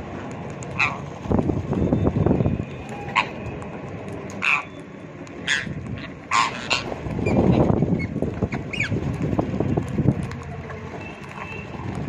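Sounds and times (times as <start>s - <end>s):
parakeets screeching: 0.7s - 1.1s, 2.6s - 3.6s, 4.3s - 9.0s.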